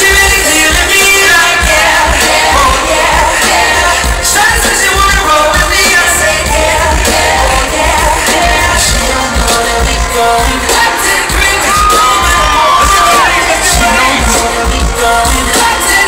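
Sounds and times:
loud bass-heavy backing music: 0:00.0 - 0:16.0
man singing: 0:00.0 - 0:16.0.

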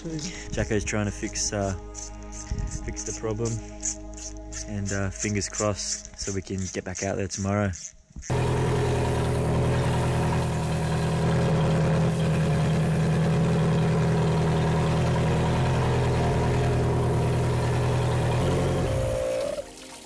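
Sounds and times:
outboard motor idling: 0:08.3 - 0:19.6.

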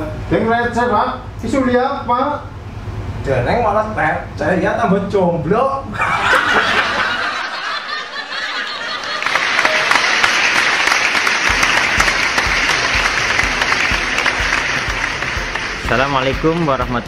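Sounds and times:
men laughing: 0:05.9 - 0:10.0
applause: 0:08.6 - 0:17.0
music beat: 0:10.9 - 0:17.0.

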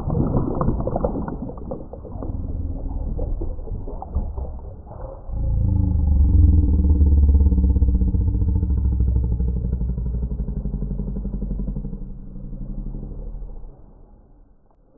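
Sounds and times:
low pulsing rumbling drone: 0:02.0 - 0:14.8.

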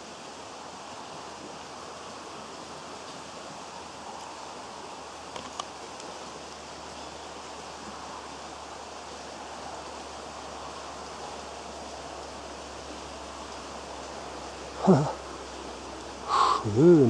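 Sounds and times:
rushing background noise: 0:00.0 - 0:17.0.

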